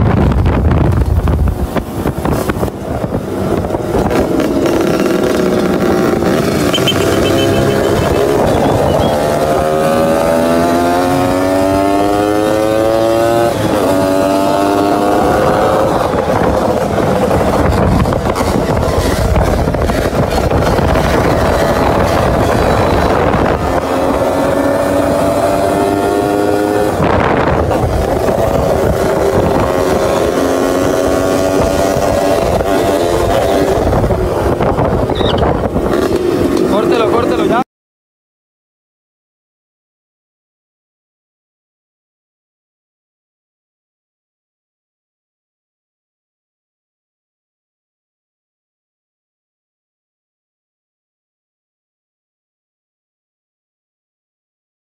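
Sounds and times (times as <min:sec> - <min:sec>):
rough noise: 0:00.0 - 0:37.6
wind noise on microphone: 0:00.0 - 0:37.6
motorcycle engine revving: 0:00.3 - 0:37.6.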